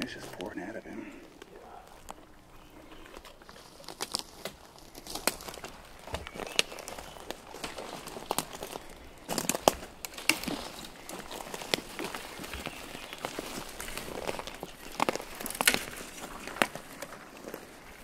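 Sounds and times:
boots walking on forest litter: 0.0 - 18.0
twigs snapping underfoot: 3.0 - 18.0.

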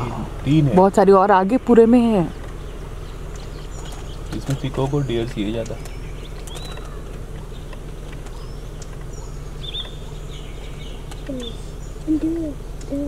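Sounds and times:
birds chirping: 0.0 - 13.0
steady low hum: 0.0 - 13.0
low descending hoot-like call: 11.3 - 13.0.

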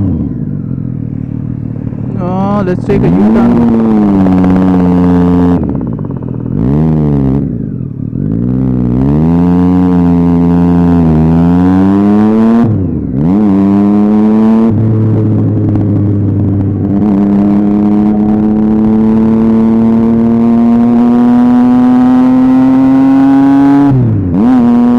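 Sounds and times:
motorcycle engine revving: 0.0 - 24.9.

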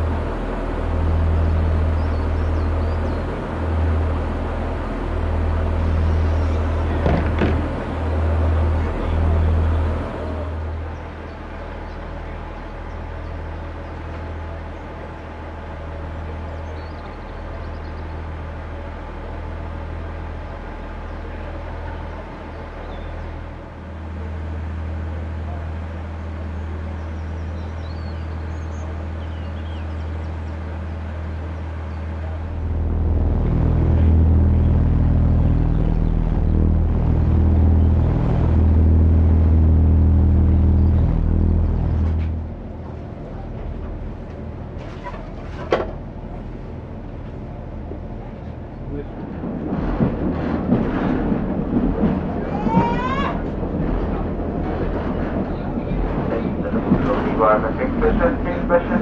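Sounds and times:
train diesel engine drone: 0.0 - 59.0
sharp knocks: 7.0 - 7.7.

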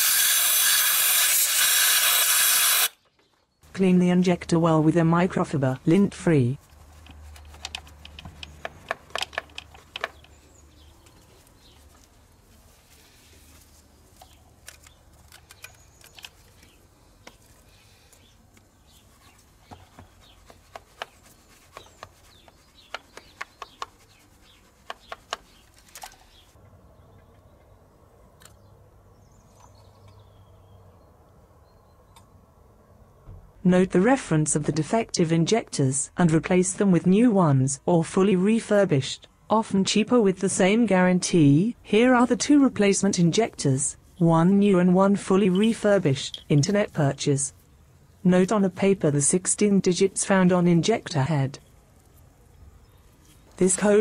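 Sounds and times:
cloth rubbing: 11.0 - 14.2.

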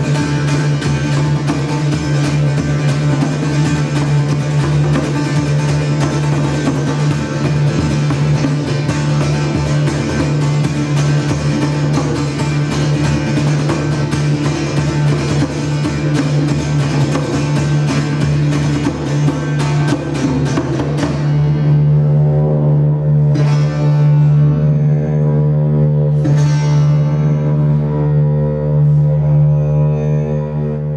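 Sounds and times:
djembe drumming: 0.0 - 22.0
didgeridoo drone: 0.0 - 30.9
plucked long-necked lute: 0.0 - 30.9.

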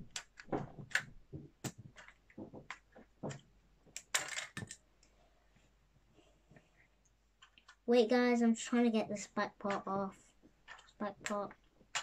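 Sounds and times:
plastic pieces clicking: 0.0 - 5.1, 7.4 - 7.8, 10.6 - 12.0.

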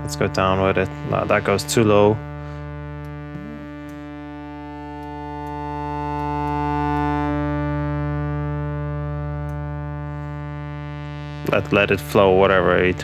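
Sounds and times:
synth drone: 0.7 - 9.1.

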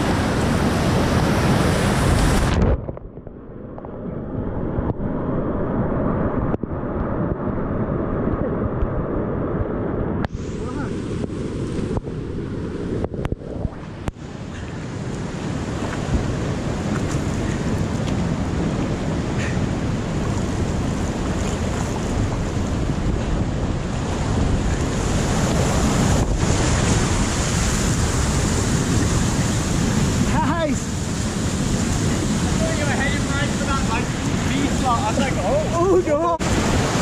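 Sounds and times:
whitewater rapids rushing: 13.8 - 37.0.

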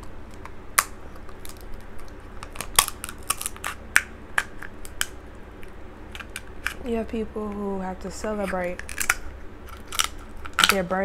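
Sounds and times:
scissors snipping crab shell: 0.3 - 5.2.

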